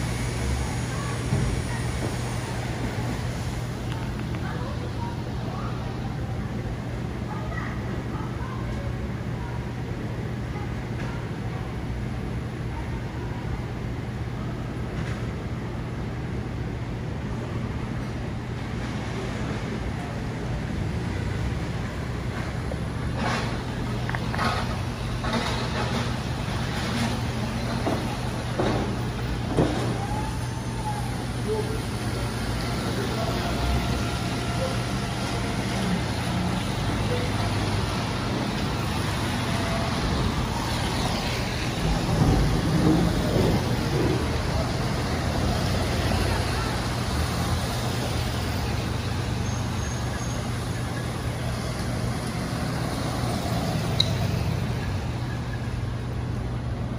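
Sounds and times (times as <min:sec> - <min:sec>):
tyres on wet road: 0:00.0 - 0:56.9
truck engine humming: 0:21.0 - 0:56.9.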